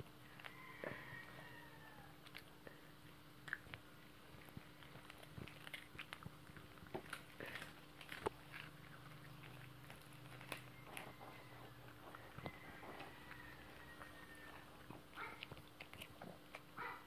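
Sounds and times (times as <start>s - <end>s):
dog chewing biscuit: 3.4s - 17.0s.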